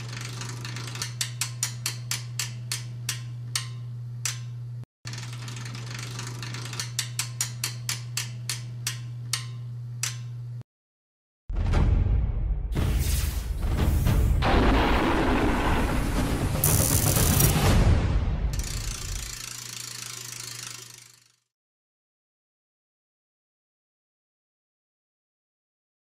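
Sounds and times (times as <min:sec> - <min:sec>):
loud boom: 0:11.5 - 0:18.6.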